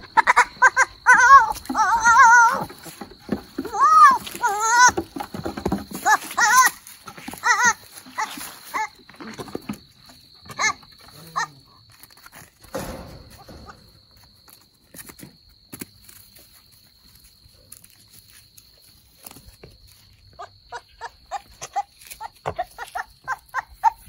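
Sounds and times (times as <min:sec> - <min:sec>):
high-pitched insect drone: 0:00.0 - 0:15.3
goats scuffling and stepping: 0:00.3 - 0:11.2, 0:11.8 - 0:20.4
thump: 0:12.7 - 0:14.0.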